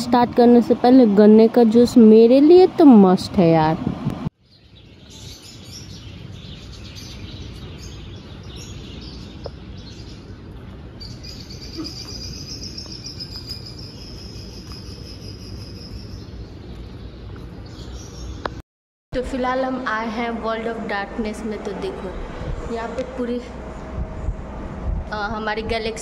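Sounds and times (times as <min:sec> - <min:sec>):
steady low rumble: 0:19.2 - 0:26.0.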